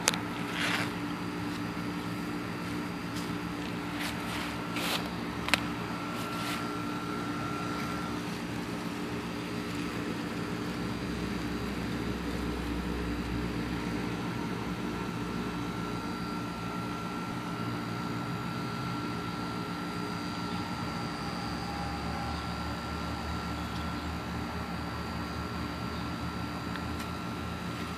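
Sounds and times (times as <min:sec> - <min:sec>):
engine-like drone: 0:00.0 - 0:27.9.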